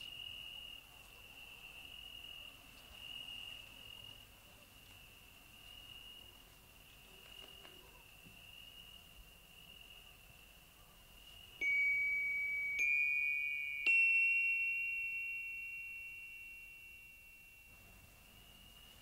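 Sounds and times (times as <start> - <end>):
faint steady high tone: 0.0 - 19.0
bell-like chime notes: 11.6 - 18.3.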